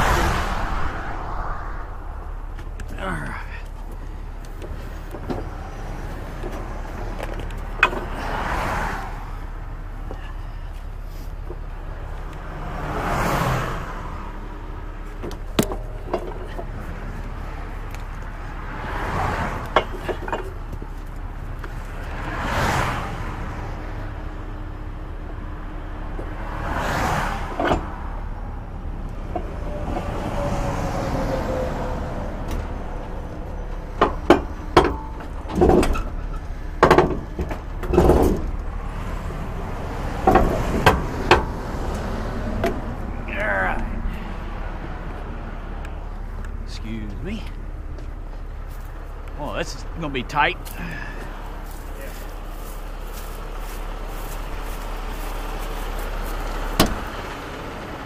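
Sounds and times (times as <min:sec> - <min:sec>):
highway traffic passing: 0:00.0 - 0:58.0
sharp knocks and clanks: 0:04.4 - 0:05.7, 0:06.4 - 0:08.4, 0:15.0 - 0:16.9, 0:19.6 - 0:21.8, 0:33.6 - 0:38.7, 0:39.9 - 0:41.6, 0:55.2 - 0:57.5.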